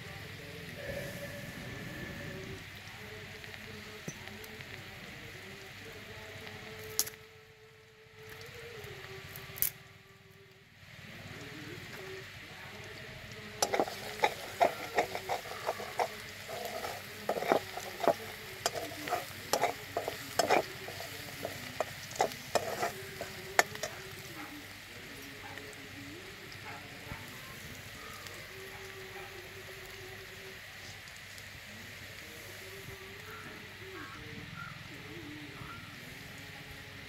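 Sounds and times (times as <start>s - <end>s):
onions sizzling in oil: 0.0s - 37.0s
metal spatula scraping pan: 13.6s - 24.0s.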